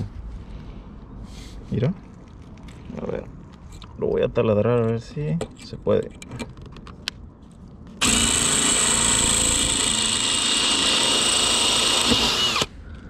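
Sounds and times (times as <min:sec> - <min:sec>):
drill bit cutting: 0:08.0 - 0:12.7
cordless drill whining: 0:08.0 - 0:12.8.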